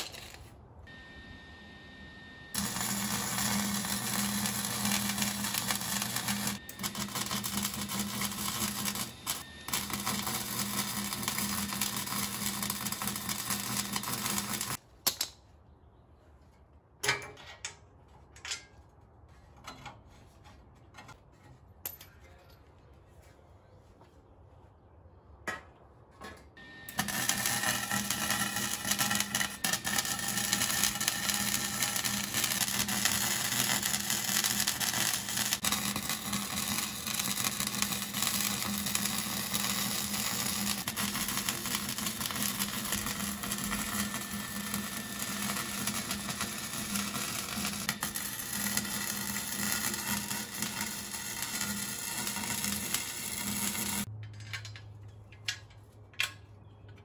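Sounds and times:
arc welder crackling and hissing: 0.0 - 1.7, 2.5 - 14.8, 26.9 - 54.1.

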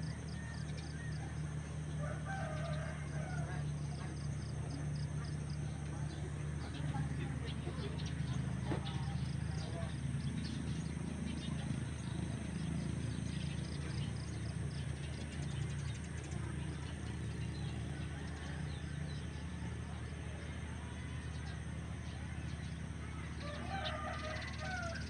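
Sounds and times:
birds chirping: 0.0 - 25.0
steady low hum: 0.0 - 25.0.

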